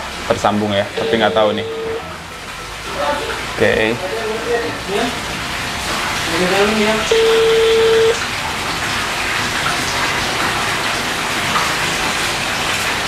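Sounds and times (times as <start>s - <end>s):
ringback tone beep: 1.0s - 2.0s, 7.1s - 8.2s.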